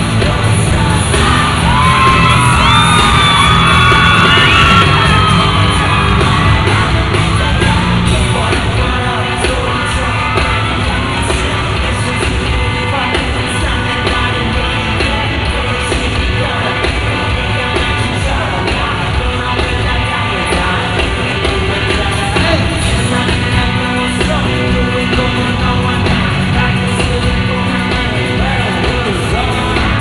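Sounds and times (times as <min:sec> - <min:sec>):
backing track with steady beat: 0:00.0 - 0:30.0
man singing into microphone: 0:00.0 - 0:30.0
audience yelling: 0:00.8 - 0:13.0.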